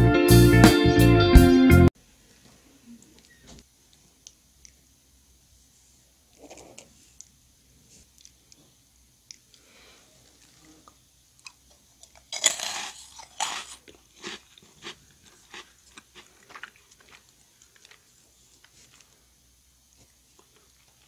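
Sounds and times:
crackling chews: 0:08.0 - 0:21.0
meringue cookie crunching: 0:08.0 - 0:21.0.

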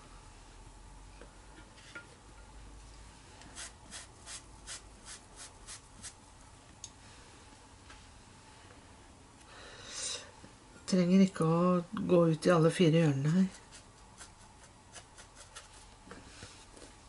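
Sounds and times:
paintbrush strokes on paper: 0:03.5 - 0:06.2.

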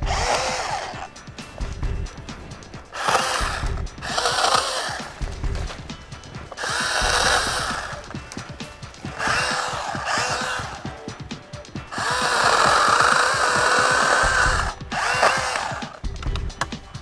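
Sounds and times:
cordless chainsaw cutting branches: 0:00.0 - 0:01.1, 0:02.9 - 0:10.9, 0:11.8 - 0:16.0.

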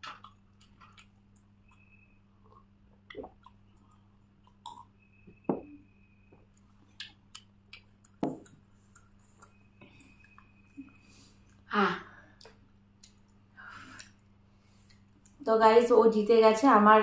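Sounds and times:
steady low hum: 0:00.0 - 0:17.0
soft chewing: 0:00.1 - 0:05.2, 0:06.4 - 0:11.7, 0:12.3 - 0:15.4.

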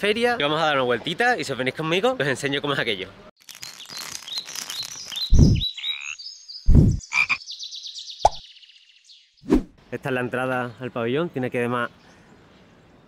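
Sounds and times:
high chirps: 0:03.5 - 0:08.6.

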